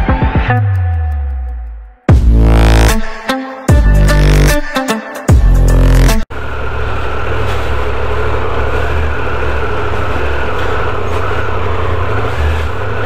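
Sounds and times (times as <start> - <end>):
intro music: 0.0 - 6.3
motorcycle engine rumbling: 6.3 - 13.0.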